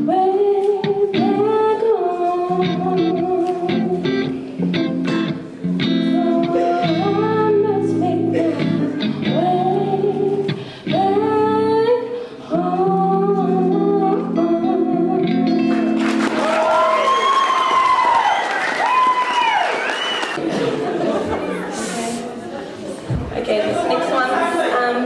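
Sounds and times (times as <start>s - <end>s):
woman singing into microphone: 0.0s - 4.4s, 6.0s - 15.6s
strummed electric guitar: 2.5s - 11.6s, 12.6s - 16.4s
audience cheering and applause: 15.7s - 20.6s.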